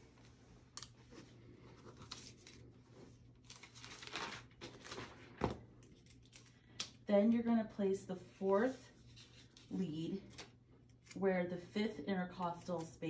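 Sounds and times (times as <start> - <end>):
paper and fabric rustling: 0.0 - 5.6.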